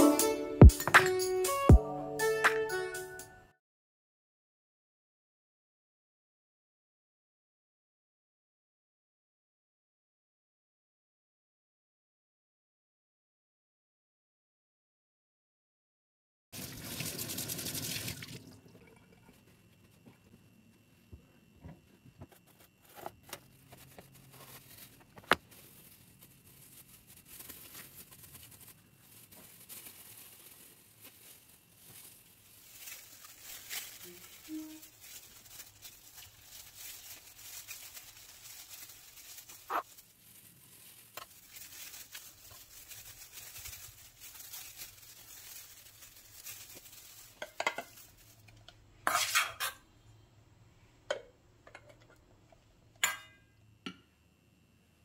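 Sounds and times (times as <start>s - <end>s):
knife and spoon scraping metal bowl: 49.0s - 49.8s.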